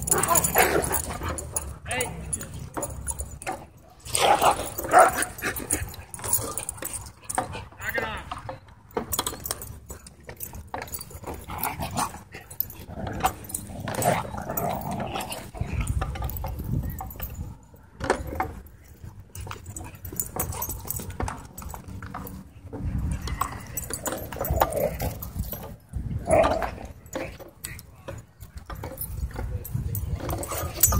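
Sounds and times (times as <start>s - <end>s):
dogs growling and whining: 0.0s - 1.7s, 11.1s - 15.6s, 23.2s - 27.4s
dogs scuffling and clicking: 0.0s - 30.9s.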